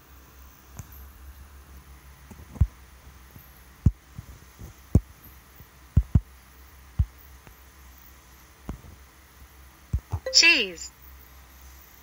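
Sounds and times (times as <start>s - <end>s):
steady low hum: 0.0s - 12.0s
fingertip taps on touchscreen: 6.0s - 6.3s.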